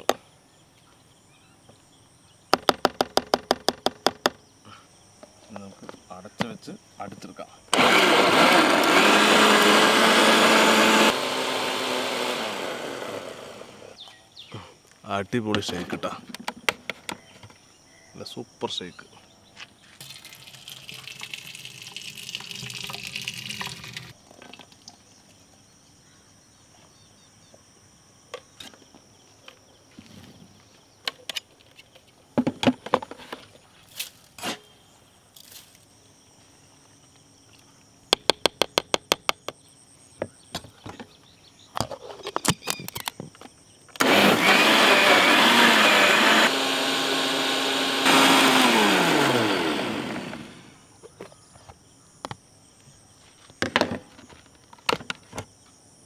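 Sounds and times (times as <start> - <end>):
electric blender running: 7.8 - 14.0, 44.0 - 50.8
thick milkshake pouring: 20.0 - 24.2.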